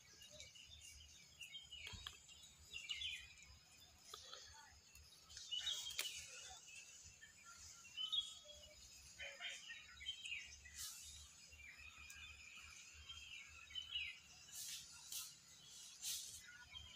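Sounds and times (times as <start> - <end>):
low outdoor hum: 0.0 - 16.9.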